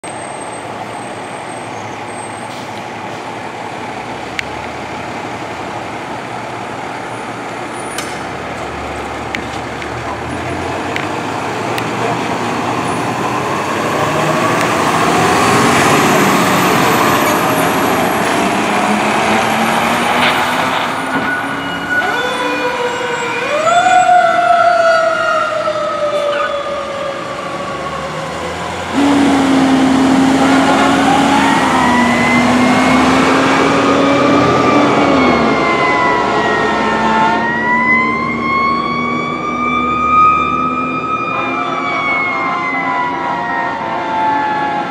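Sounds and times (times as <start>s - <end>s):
diesel engine accelerating: 0.6s - 42.3s
siren winding up and down: 21.3s - 28.3s, 29.5s - 44.9s
loud steady horn blast: 28.8s - 33.5s, 41.1s - 44.9s.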